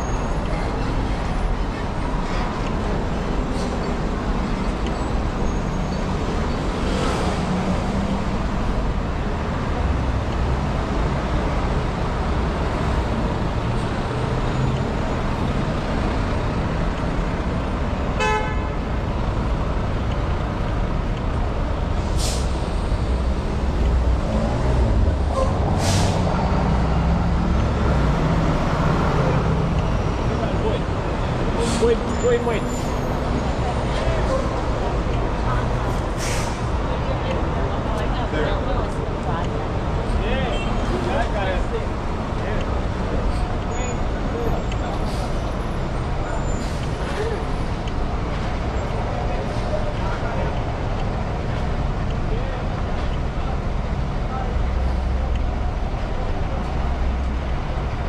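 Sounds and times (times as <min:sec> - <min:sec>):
rumble of passing traffic: 0:00.0 - 0:58.0
car horn toot: 0:18.2 - 0:18.8.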